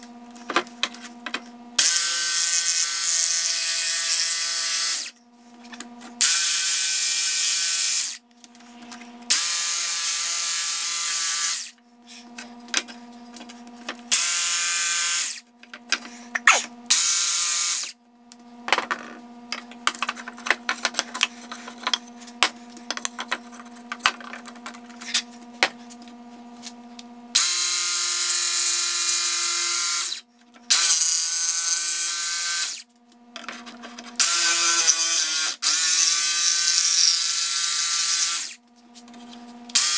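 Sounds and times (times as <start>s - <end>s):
jigsaw cutting wood: 1.8s - 5.1s, 6.2s - 8.2s, 9.3s - 11.8s, 14.1s - 15.4s, 16.4s - 17.9s, 27.4s - 32.8s, 34.2s - 38.6s.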